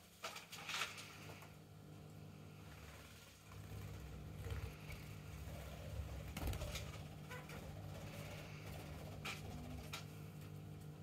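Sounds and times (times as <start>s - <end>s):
steady low hum: 0.5s - 11.0s
parrots chirping: 4.6s - 9.8s.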